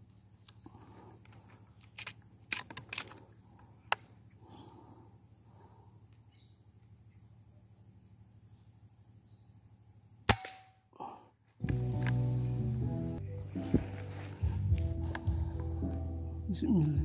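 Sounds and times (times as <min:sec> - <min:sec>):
high insect drone: 0:00.0 - 0:17.0
sharp clicks: 0:01.3 - 0:03.2
low hum: 0:11.6 - 0:17.0.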